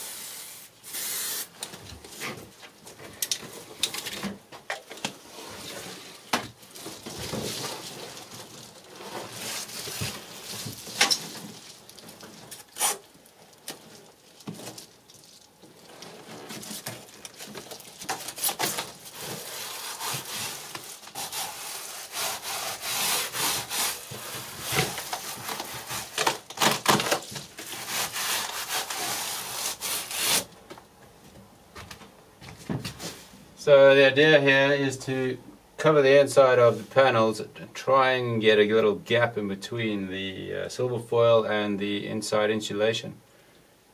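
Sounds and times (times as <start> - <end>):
foil insulation crinkling: 5.2 - 30.5.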